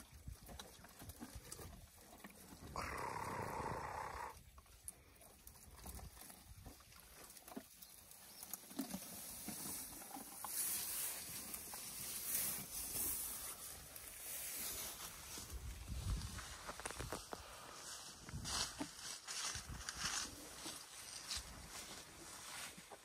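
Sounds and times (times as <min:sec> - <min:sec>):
branches snapping and rustling: 0:16.2 - 0:17.4.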